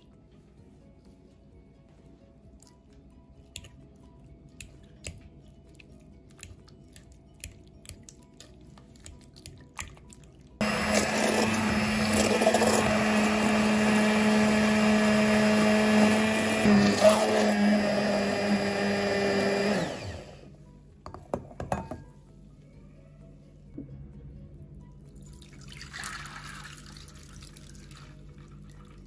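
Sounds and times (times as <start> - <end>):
stick blender running: 10.6 - 20.5.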